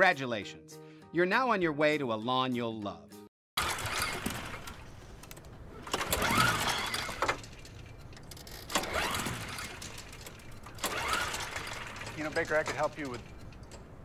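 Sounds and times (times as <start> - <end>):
engine whirring over: 3.6 - 14.0
lawn mower recoil starter pulls: 3.6 - 14.0.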